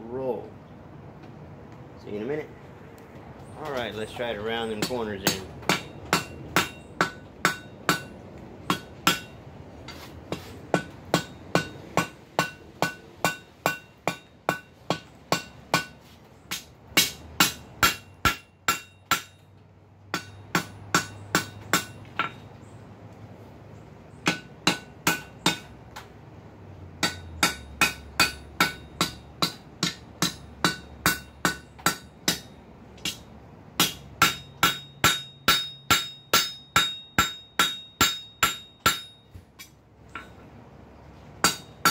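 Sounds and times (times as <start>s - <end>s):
hammer striking steel on anvil: 4.6s - 9.4s, 10.7s - 19.5s, 20.1s - 22.4s, 24.2s - 25.7s, 27.0s - 40.4s, 41.4s - 41.9s.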